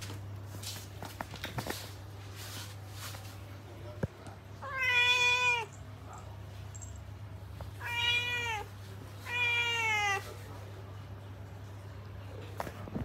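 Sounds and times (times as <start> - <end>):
cat meowing: 4.6 - 5.8, 7.8 - 10.3.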